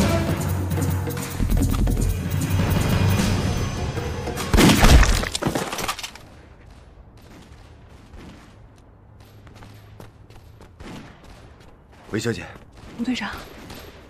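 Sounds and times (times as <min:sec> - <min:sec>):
dramatic orchestral film music: 0:00.0 - 0:04.8.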